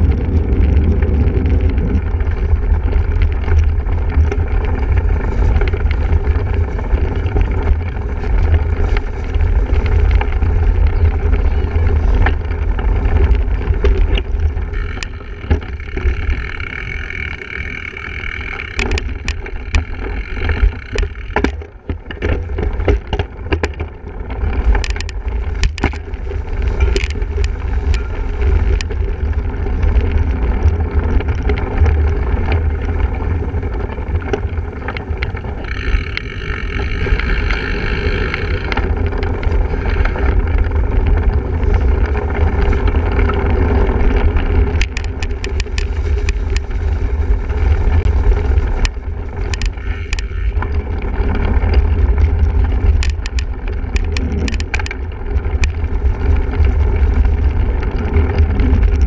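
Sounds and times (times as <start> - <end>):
bike rattles and clicks: 0.0 - 59.0
wind and ground rumble on microphone: 0.0 - 59.0.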